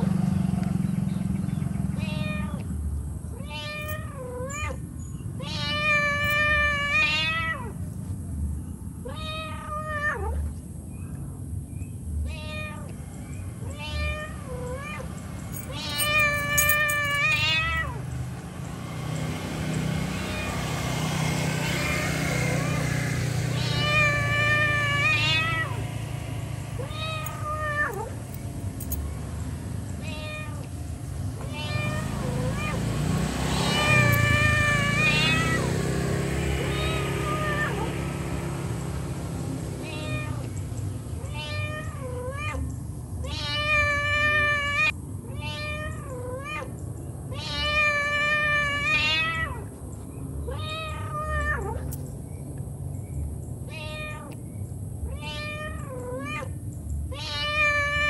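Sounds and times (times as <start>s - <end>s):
cat meowing: 2.0s - 2.7s, 3.3s - 4.8s, 5.4s - 7.8s, 9.0s - 10.4s, 12.2s - 13.0s, 13.6s - 18.0s, 21.6s - 22.8s, 23.5s - 25.8s, 26.8s - 28.3s, 30.0s - 30.8s, 31.4s - 32.8s, 33.5s - 35.7s, 36.6s - 37.9s, 39.8s - 40.5s, 41.2s - 49.7s, 50.5s - 51.9s, 53.7s - 54.4s, 55.0s - 58.0s.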